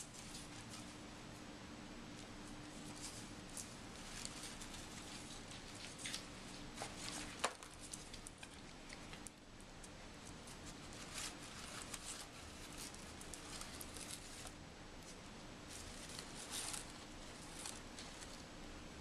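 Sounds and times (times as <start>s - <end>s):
paper bag rustling and crinkling: 2.6s - 9.3s, 10.5s - 18.6s.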